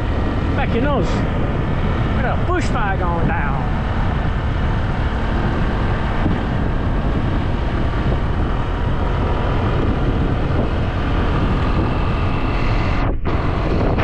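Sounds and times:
motorcycle engine drone: 0.0s - 14.0s
wind buffeting microphone: 0.0s - 14.0s.

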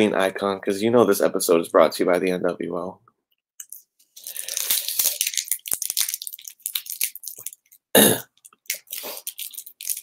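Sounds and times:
cough-like burst: 8.0s - 8.3s.

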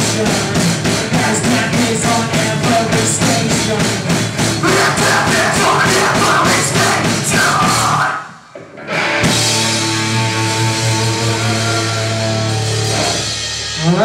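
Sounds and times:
drum beat: 0.0s - 8.2s
heavy metal band playing: 0.0s - 14.0s
screamed vocals: 4.6s - 8.4s.

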